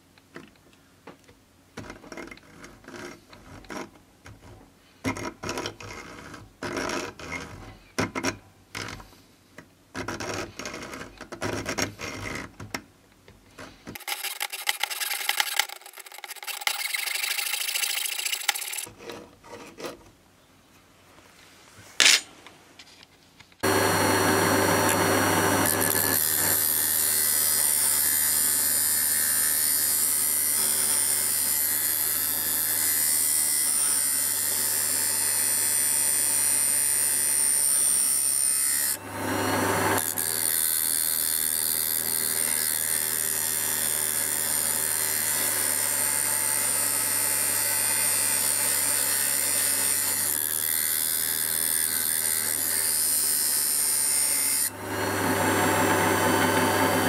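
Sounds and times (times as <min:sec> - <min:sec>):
drill press humming and whining: 0:23.6 - 0:57.0.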